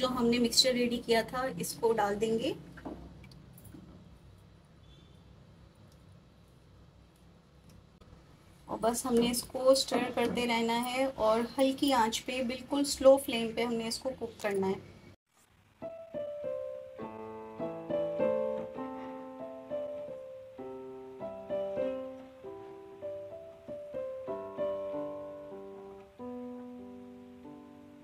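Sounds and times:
slow gentle piano music: 15.8s - 28.0s.

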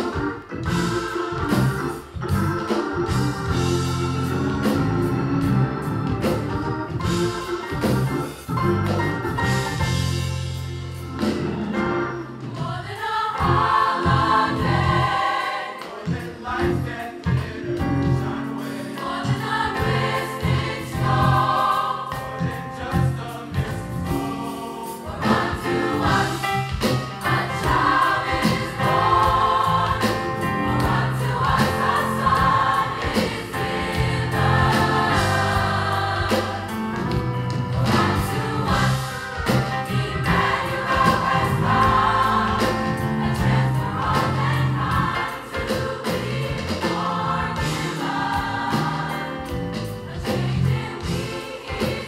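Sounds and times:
instrumental accompaniment with a beat: 0.0s - 52.0s
choir singing in parts: 11.4s - 52.0s.

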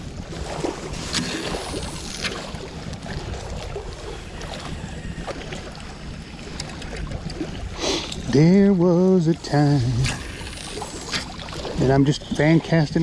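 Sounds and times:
lake water lapping: 0.0s - 13.0s
wind buffeting microphone: 0.0s - 13.0s
fishing rod handling rustles: 1.0s - 2.6s.

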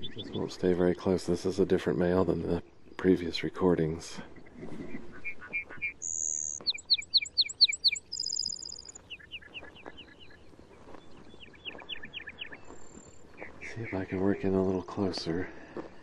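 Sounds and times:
bird singing with trills: 5.1s - 14.1s.

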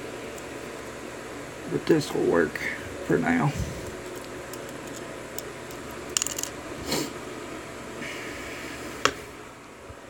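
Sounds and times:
small metal lock parts clicking: 4.1s - 6.6s.

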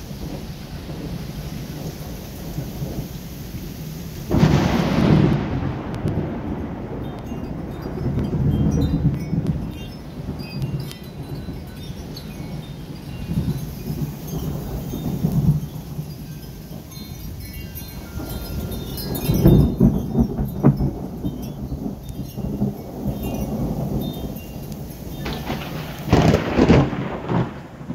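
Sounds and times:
steady rain: 0.0s - 27.9s
thunder rumbling: 0.0s - 27.9s
metal wind chimes ringing: 6.1s - 27.5s.

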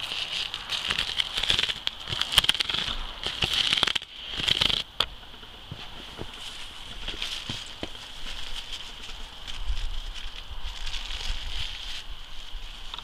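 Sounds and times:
foil and paper crinkling: 0.0s - 4.8s.

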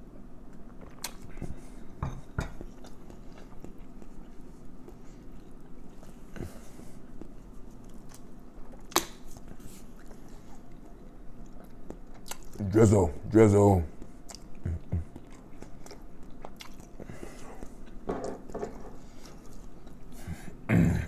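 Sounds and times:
person chewing: 0.5s - 12.7s, 13.9s - 18.1s, 18.8s - 20.5s.

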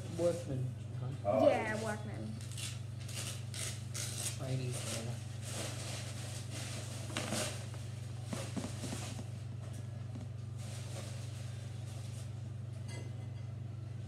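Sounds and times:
wrapping rustling: 2.4s - 9.4s.

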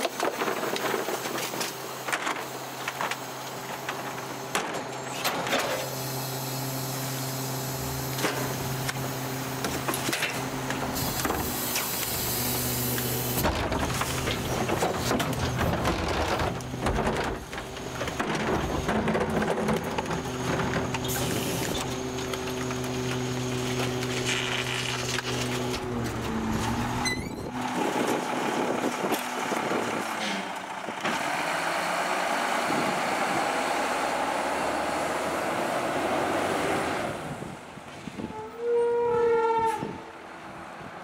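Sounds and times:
truck engine running: 5.8s - 37.8s
trash cart knocking and clattering: 13.4s - 21.2s.

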